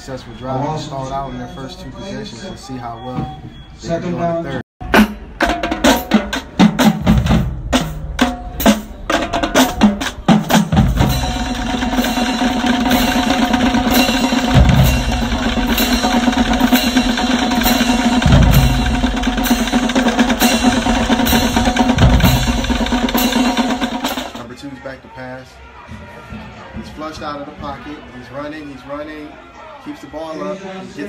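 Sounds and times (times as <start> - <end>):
snare drum strokes and roll: 4.9 - 24.4
deep bass drum hits: 13.6 - 23.3.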